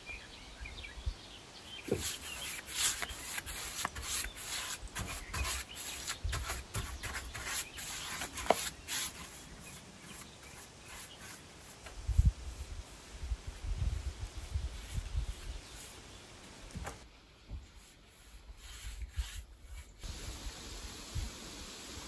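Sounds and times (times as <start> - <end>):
brush strokes on wood: 1.8 - 16.6, 17.4 - 20.2.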